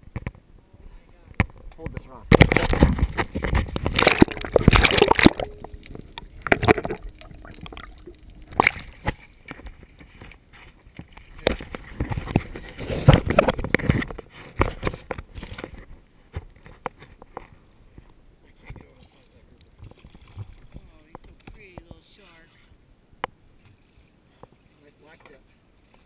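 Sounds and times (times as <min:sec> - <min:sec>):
water splashing against boat: 0:01.3 - 0:17.1.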